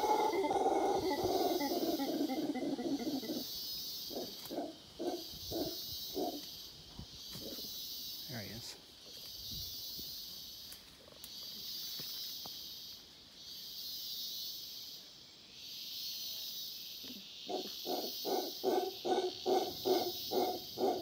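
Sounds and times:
howler monkey barking grunts: 0.0s - 3.5s, 4.1s - 6.4s, 17.5s - 21.0s
high insect buzz: 0.0s - 21.0s.

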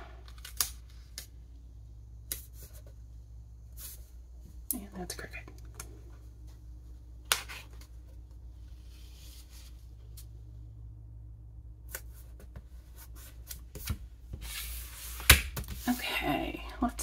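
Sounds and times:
low hum: 1.1s - 13.3s.

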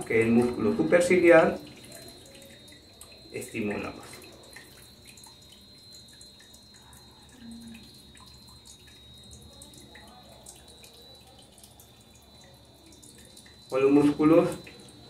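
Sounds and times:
fountain water trickling and dripping: 0.0s - 15.0s.

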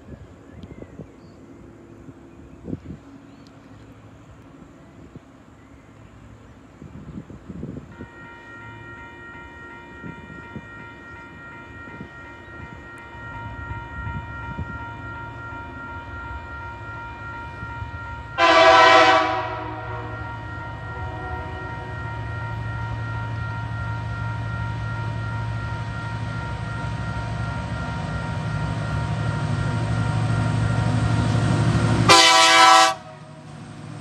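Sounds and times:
diesel locomotive engine: 0.0s - 34.0s
locomotive horn blast: 7.9s - 33.4s.

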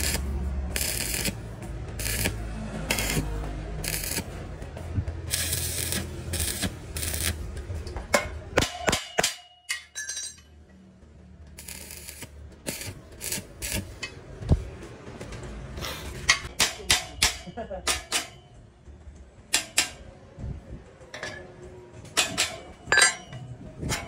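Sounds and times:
welding arc crackling and hissing: 0.0s - 4.3s, 5.2s - 7.4s, 11.6s - 14.0s
metallic clink: 8.2s - 10.6s, 22.2s - 24.0s.

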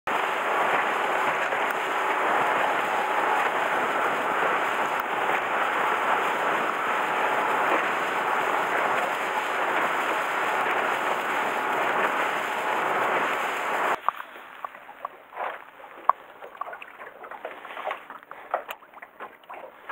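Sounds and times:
wind and water spray rushing: 0.1s - 15.5s.

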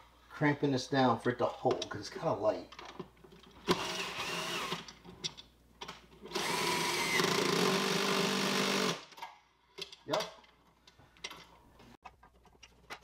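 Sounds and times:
power drill driving bolt into wood: 3.6s - 4.9s, 6.3s - 9.3s.

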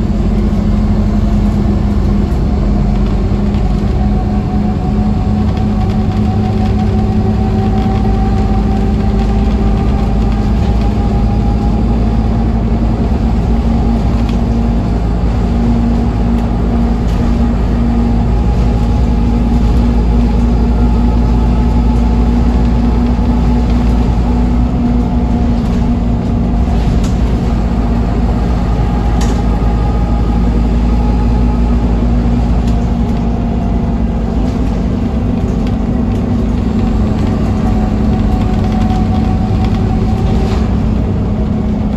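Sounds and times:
bus diesel engine drone: 0.0s - 41.9s.

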